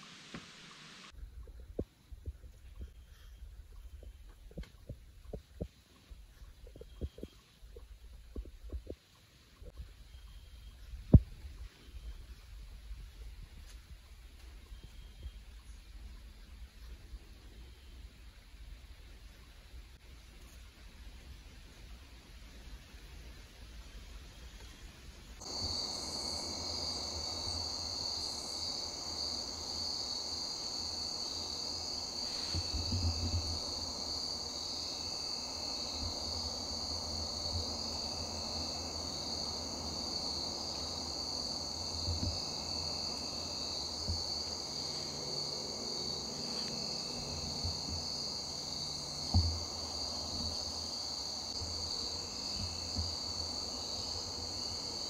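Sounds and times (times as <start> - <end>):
crickets trilling: 25.4 - 55.0.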